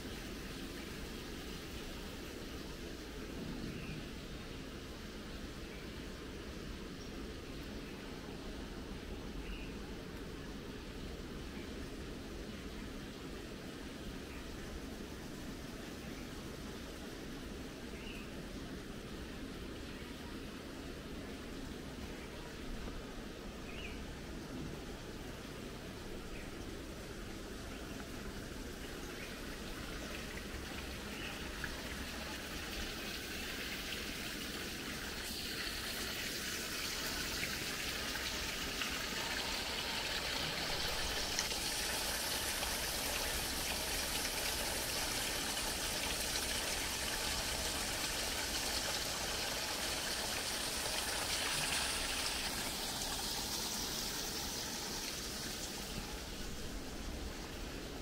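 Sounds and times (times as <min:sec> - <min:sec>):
water trickling and splashing: 0:24.9 - 0:58.0.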